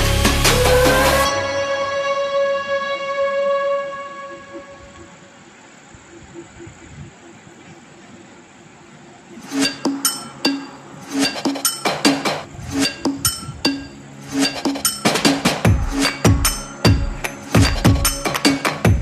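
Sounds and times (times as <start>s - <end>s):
ringing clinking percussive notes: 9.5s - 19.0s.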